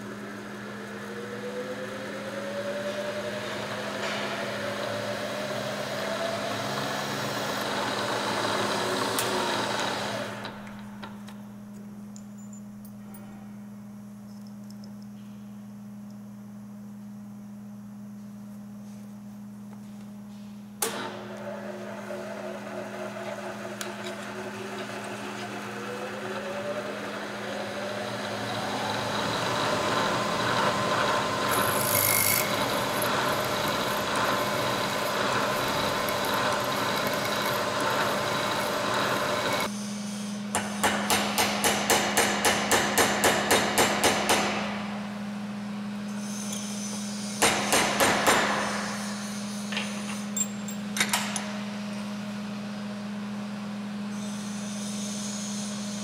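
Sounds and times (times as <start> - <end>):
milling machine spindle whine: 0.0 - 11.1, 20.9 - 39.9.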